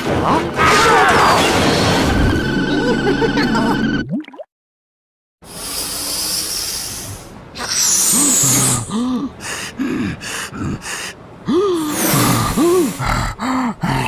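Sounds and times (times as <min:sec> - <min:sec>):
cartoon monster gasping and huffing: 0:05.5 - 0:14.0.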